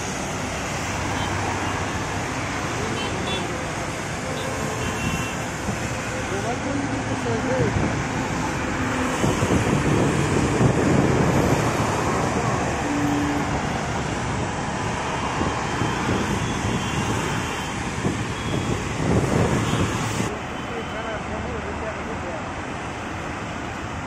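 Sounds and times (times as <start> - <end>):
heavy highway traffic: 0.0 - 24.0.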